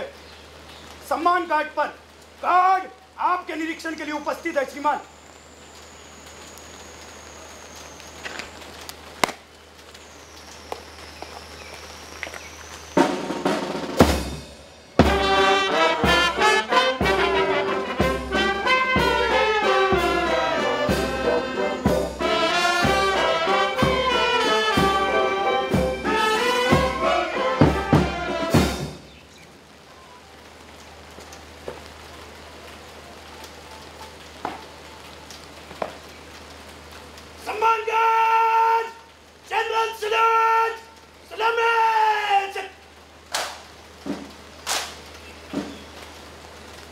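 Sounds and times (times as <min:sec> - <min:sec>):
steady hiss: 0:00.0 - 0:46.9
military brass band playing a march: 0:13.0 - 0:29.1.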